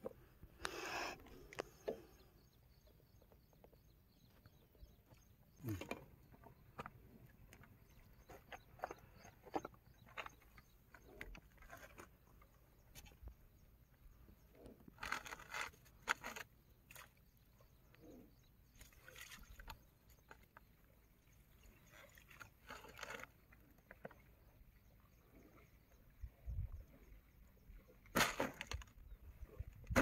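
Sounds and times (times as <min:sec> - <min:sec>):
rustling of fishing tackle: 0:14.9 - 0:17.1.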